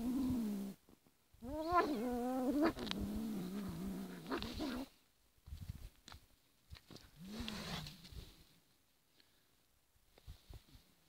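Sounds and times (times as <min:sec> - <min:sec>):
cat growling and yowling: 0:00.0 - 0:00.8, 0:01.4 - 0:04.9.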